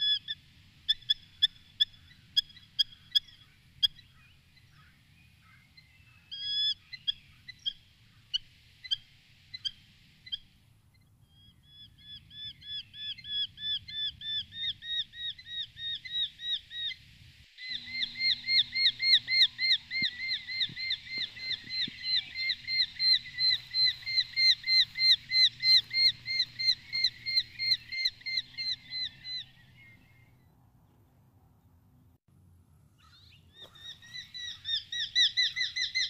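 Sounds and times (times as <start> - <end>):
bird chirping rapidly: 17.6 - 30.4, 33.0 - 36.0.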